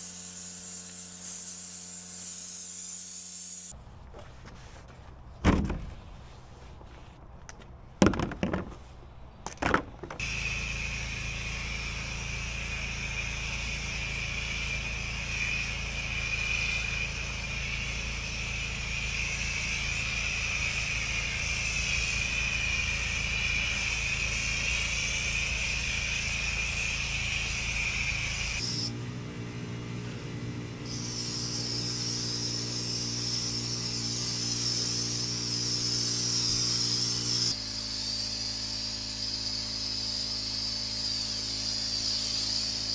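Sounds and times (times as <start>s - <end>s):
pressure washer spraying: 0.0s - 3.8s, 10.2s - 42.9s
pressure washer motor running: 10.2s - 42.9s.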